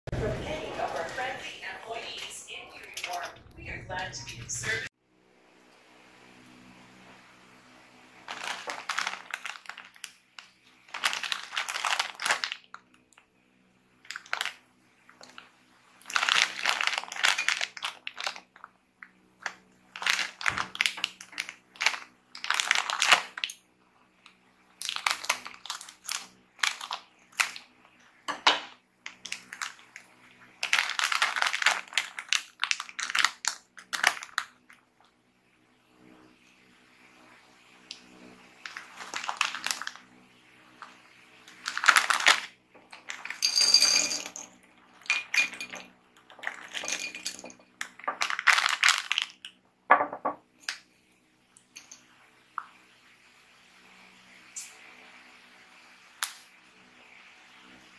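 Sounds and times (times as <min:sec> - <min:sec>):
snack packet crinkling: 0:08.3 - 0:13.1, 0:14.1 - 0:18.7, 0:19.4 - 0:23.6, 0:24.8 - 0:27.7, 0:29.1 - 0:34.8, 0:38.6 - 0:40.0, 0:40.8 - 0:43.6, 0:44.9 - 0:49.5.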